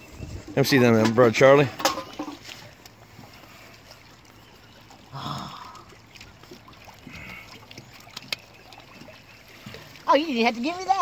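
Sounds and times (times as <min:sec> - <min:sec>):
water lapping against boat hull: 0:00.0 - 0:11.0.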